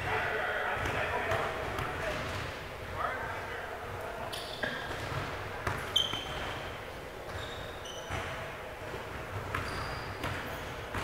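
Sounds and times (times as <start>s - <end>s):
sneakers squeaking on floor: 4.3s - 11.0s
basketball bouncing: 4.9s - 6.4s, 8.1s - 8.4s, 9.1s - 11.0s.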